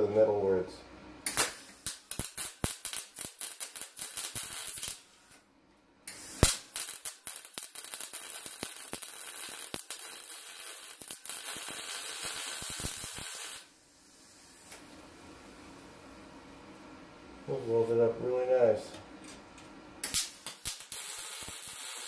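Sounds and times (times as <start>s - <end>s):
sharp pop of welding arc: 1.2s - 5.4s, 6.1s - 13.7s, 20.0s - 22.0s
welder arc crackling: 1.3s - 5.4s, 6.1s - 13.7s, 20.0s - 22.0s.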